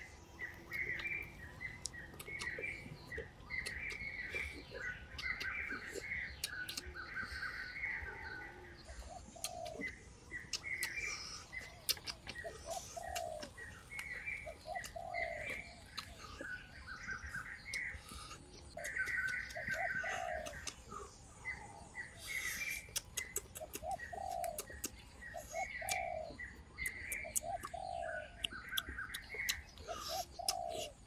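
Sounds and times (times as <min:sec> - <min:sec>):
small birds chirping: 0:00.0 - 0:31.0
sharp clicks: 0:01.8 - 0:02.7, 0:11.8 - 0:12.4, 0:22.9 - 0:25.0
dove cooing: 0:08.4 - 0:09.9, 0:12.3 - 0:13.7, 0:14.4 - 0:16.3, 0:18.8 - 0:20.7, 0:23.5 - 0:24.7, 0:25.5 - 0:26.4, 0:29.9 - 0:31.0.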